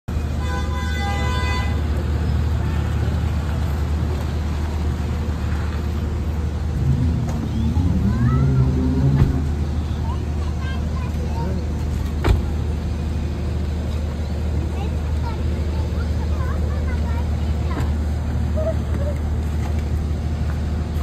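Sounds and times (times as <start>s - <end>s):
car engine rumble: 0.1s - 21.0s
voices calling out: 0.1s - 21.0s
car horn toot: 0.4s - 1.8s.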